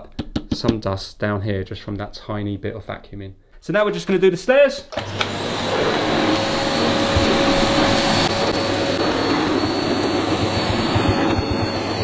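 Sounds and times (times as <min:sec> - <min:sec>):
vacuum cleaner running: 0:04.9 - 0:12.0
floor brush on carpet: 0:05.5 - 0:09.0.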